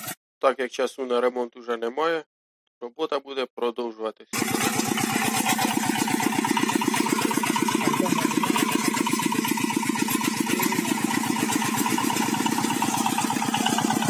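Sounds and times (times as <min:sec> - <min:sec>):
diesel engine chugging: 0:04.4 - 0:14.0.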